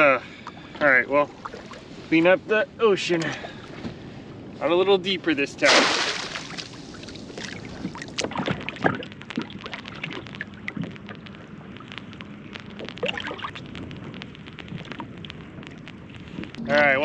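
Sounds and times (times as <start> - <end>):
water lapping against kayak hull: 0.2 - 2.4, 5.6 - 13.7.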